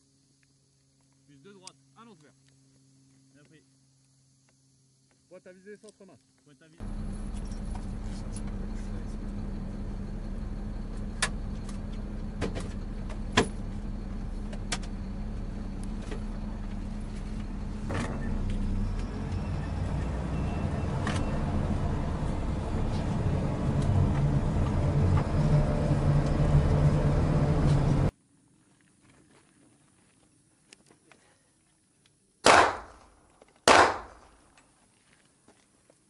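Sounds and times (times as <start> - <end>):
vehicle engine running: 6.8 - 28.1.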